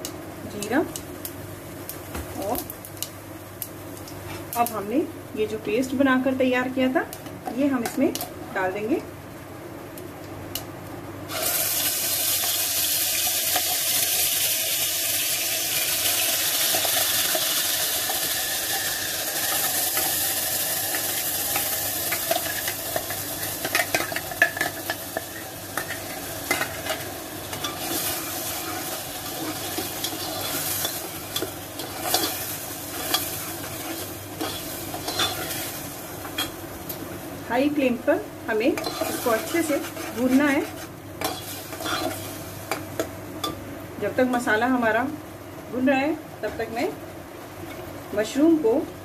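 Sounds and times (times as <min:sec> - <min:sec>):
paste sizzling in hot oil: 0:11.3 - 0:36.7, 0:38.5 - 0:43.0.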